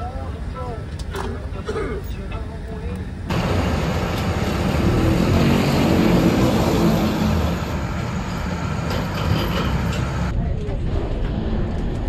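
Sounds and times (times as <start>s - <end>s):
loud jet aircraft noise: 3.0s - 12.0s.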